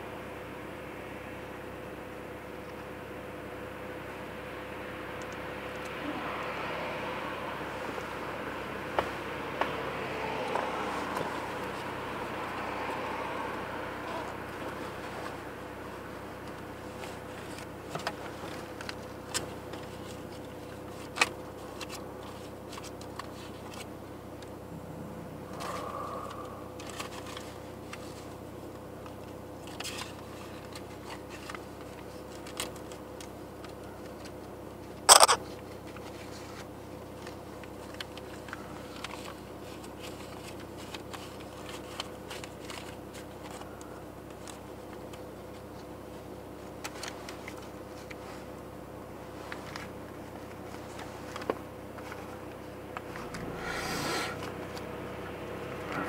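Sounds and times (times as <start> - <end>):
car idling cabin hum: 0.0 - 56.0
rush of noise: 24.7 - 27.3
sharp click: 35.1 - 35.4
small clicks: 35.1 - 35.4.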